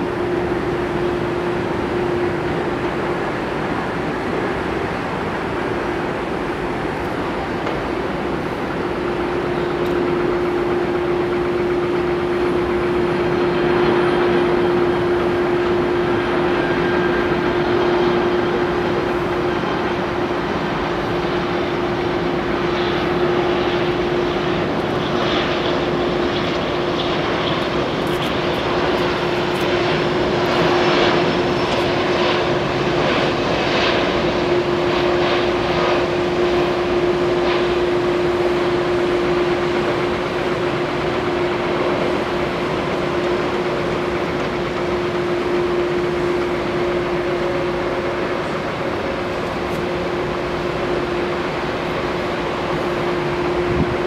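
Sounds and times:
jet engine rushing: 0:00.0 - 0:54.0
steady hum: 0:00.0 - 0:54.0.

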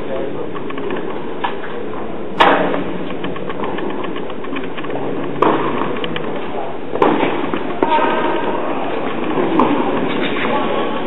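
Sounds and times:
steady background noise: 0:00.0 - 0:11.0
tennis racquet hitting ball: 0:02.4 - 0:06.2, 0:06.9 - 0:10.8.

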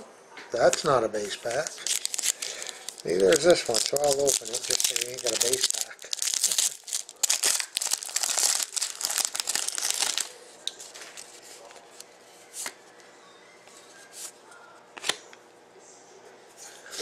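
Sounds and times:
foil wrapper crinkling and tearing: 0:01.3 - 0:11.4.

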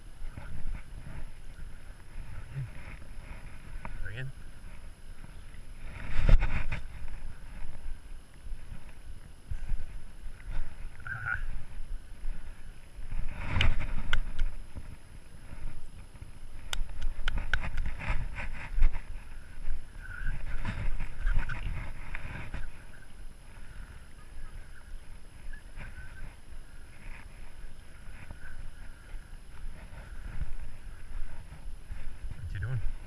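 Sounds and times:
wind noise: 0:00.0 - 0:33.0
camera rubbing and knocking: 0:05.8 - 0:07.8, 0:13.1 - 0:15.0, 0:16.6 - 0:23.0.

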